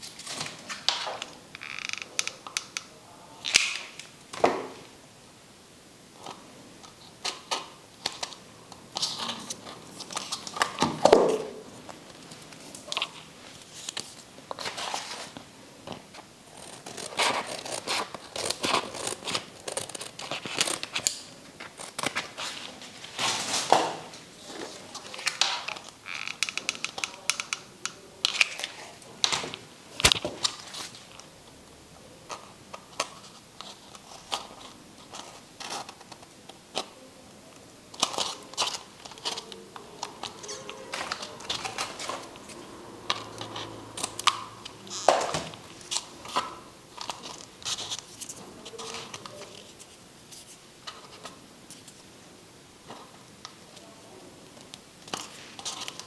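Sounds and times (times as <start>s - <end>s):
paper crinkling and rustling: 0.0s - 1.2s, 7.0s - 27.3s, 32.3s - 37.1s, 38.0s - 52.1s, 54.6s - 56.0s.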